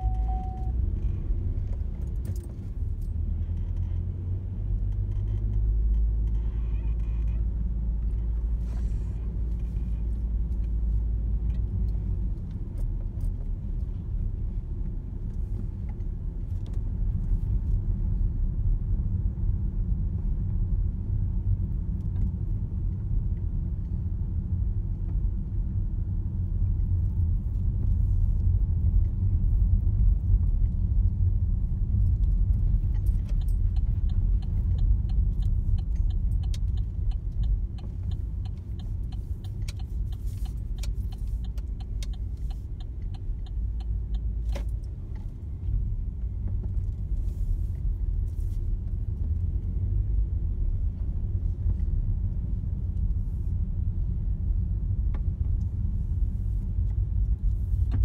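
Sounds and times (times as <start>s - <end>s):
car engine and road rumble: 0.0s - 58.0s
turn indicator ticking: 31.9s - 47.1s.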